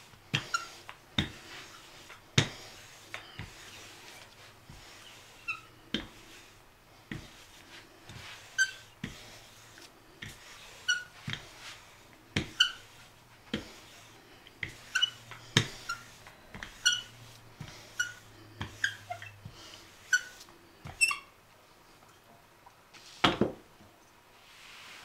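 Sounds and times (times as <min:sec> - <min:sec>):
rolling pin knocking and squeaking: 0:00.3 - 0:03.9, 0:04.7 - 0:06.2, 0:08.1 - 0:09.2, 0:10.2 - 0:11.6, 0:12.4 - 0:14.0, 0:14.6 - 0:21.4.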